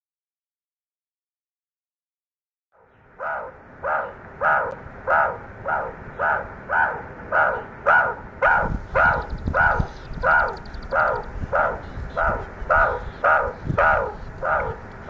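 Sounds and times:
animal calling harshly: 0:03.2 - 0:14.9.

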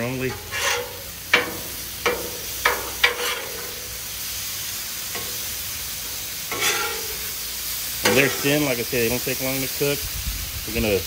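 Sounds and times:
metal spatula scraping griddle: 0:00.0 - 0:04.3, 0:05.0 - 0:09.3
liver and onions sizzling: 0:00.0 - 0:11.0.

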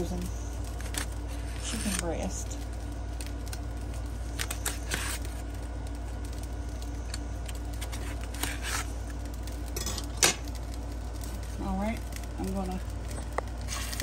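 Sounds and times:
steady low hum: 0:00.0 - 0:14.0
knife scraping on crinkling foil: 0:00.7 - 0:02.4, 0:04.3 - 0:05.6, 0:07.1 - 0:10.1, 0:13.6 - 0:14.0.

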